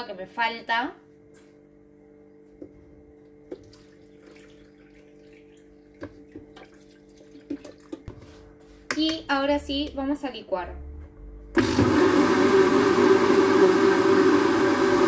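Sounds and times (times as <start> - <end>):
water pouring into blender jar: 3.5 - 8.0
steady low hum: 8.1 - 11.6.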